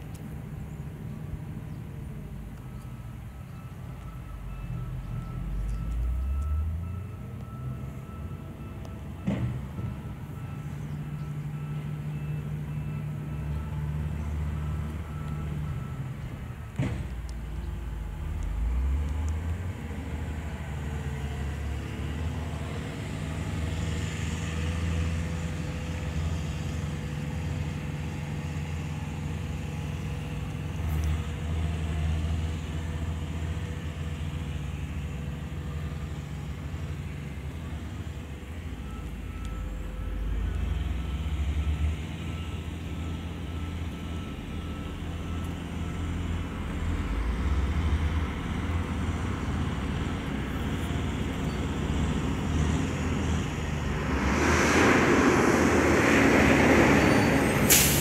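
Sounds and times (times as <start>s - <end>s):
low engine drone: 46.2s - 58.0s.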